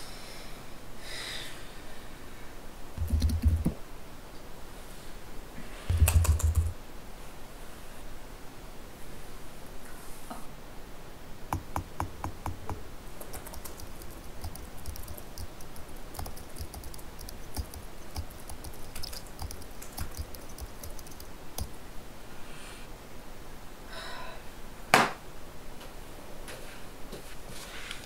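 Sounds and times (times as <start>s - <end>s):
laptop keyboard typing: 3.0s - 3.8s, 5.9s - 6.8s, 11.5s - 21.8s.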